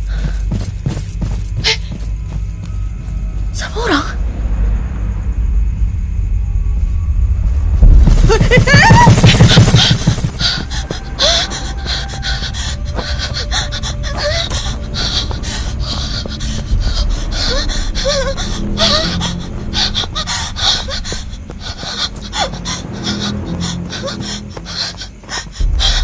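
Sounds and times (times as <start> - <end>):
person panting hard: 0.0 - 2.1, 8.7 - 26.0
running footfalls: 0.0 - 3.5, 7.8 - 16.7.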